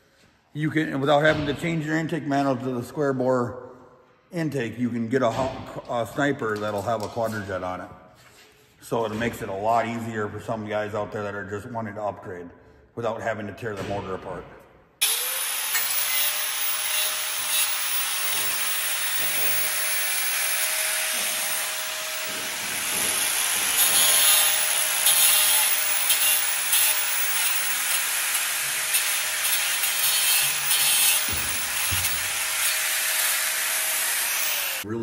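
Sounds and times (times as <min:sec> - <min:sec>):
angle grinder cutting metal: 0:15.0 - 0:34.9.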